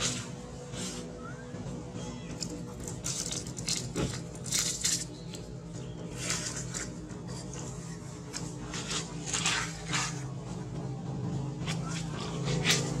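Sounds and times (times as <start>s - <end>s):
steady low hum: 0.0s - 13.0s
dry leaves rustling and crackling: 2.7s - 5.6s.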